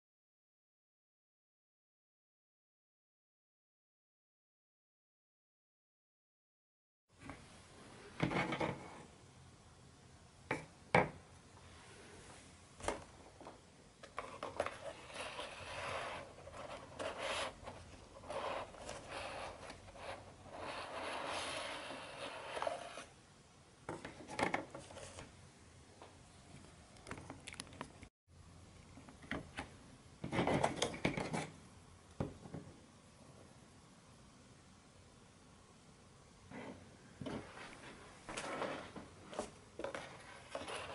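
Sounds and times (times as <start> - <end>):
cardstock rubbing and scraping: 14.1 - 23.1, 38.3 - 40.9.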